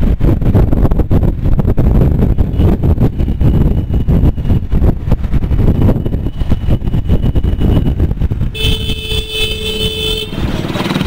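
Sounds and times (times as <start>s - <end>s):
road noise: 0.0s - 11.0s
wind buffeting microphone: 0.0s - 11.0s
vehicle horn: 8.5s - 10.5s.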